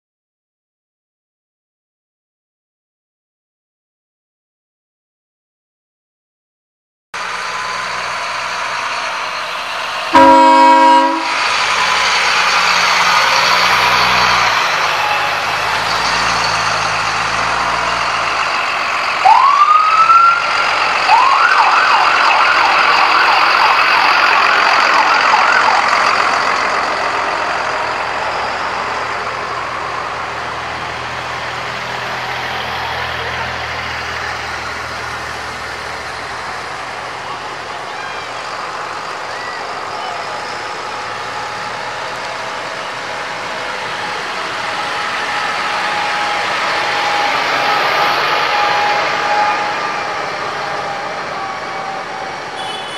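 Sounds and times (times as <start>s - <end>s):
tractor engines running: 7.2s - 52.9s
loud horn blast: 10.1s - 11.6s, 52.5s - 52.9s.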